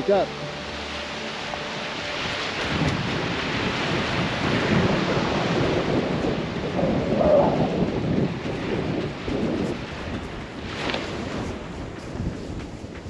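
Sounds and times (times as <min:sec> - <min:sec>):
surf washing: 0:00.0 - 0:13.0
wind buffeting microphone: 0:01.9 - 0:13.0.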